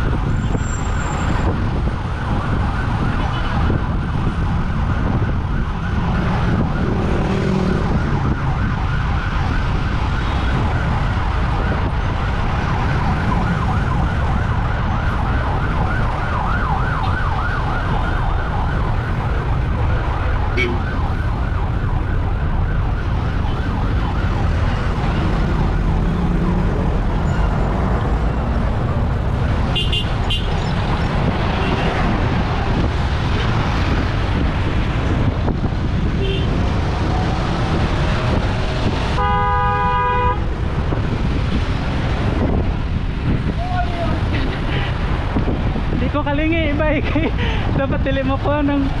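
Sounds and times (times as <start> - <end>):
emergency siren yelping: 0.0 - 39.2
road traffic: 0.0 - 49.0
wind buffeting microphone: 0.0 - 49.0
vehicle horn: 29.7 - 30.5, 36.2 - 36.5, 39.2 - 40.5.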